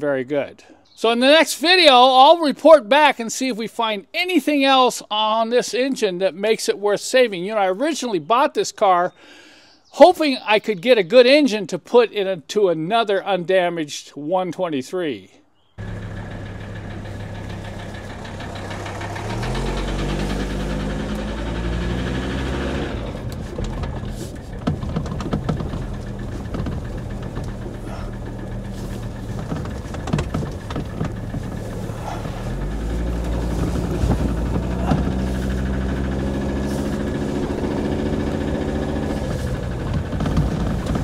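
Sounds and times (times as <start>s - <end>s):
diesel engine pulling under load: 15.8s - 41.0s
engine knocking: 15.8s - 41.0s.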